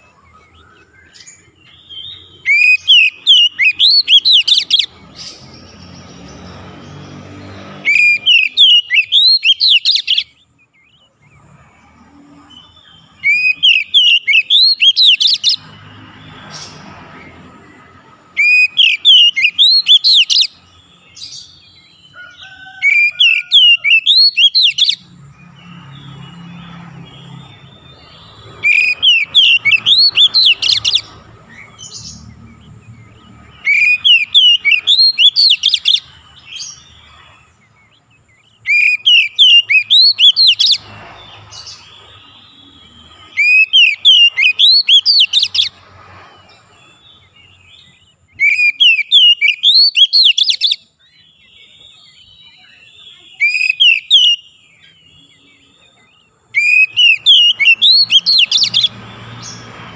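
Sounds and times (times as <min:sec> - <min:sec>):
bird singing whistled phrases: 0:00.4 - 0:04.9, 0:07.9 - 0:10.4, 0:12.4 - 0:15.6, 0:18.4 - 0:21.8, 0:22.8 - 0:25.0, 0:27.3 - 0:31.1, 0:33.6 - 0:36.9, 0:38.6 - 0:40.8, 0:41.6 - 0:45.7, 0:47.5 - 0:59.0.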